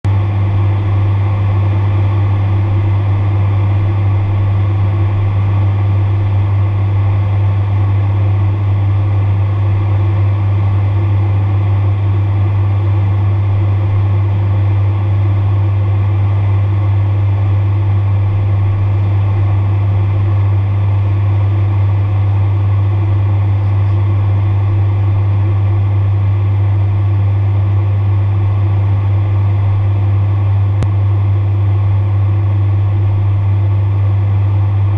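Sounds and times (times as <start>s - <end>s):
turboprop engines droning: 0.0s - 34.9s.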